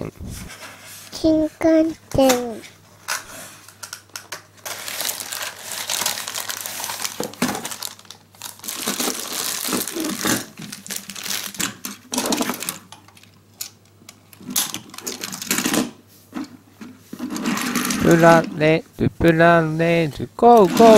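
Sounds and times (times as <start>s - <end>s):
plastic packaging crinkling: 3.1s - 13.4s, 14.4s - 15.7s
plastic toy cars clicking: 8.8s - 15.9s.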